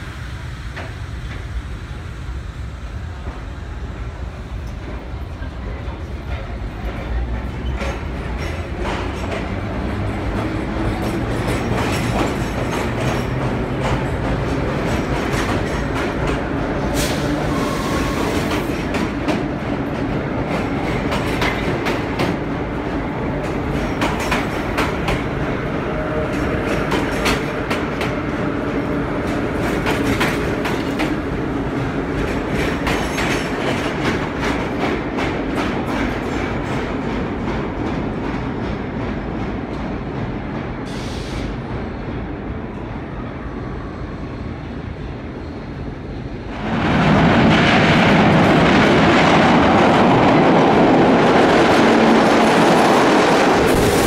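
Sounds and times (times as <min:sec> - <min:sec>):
subway train rumble: 0:00.0 - 0:54.0.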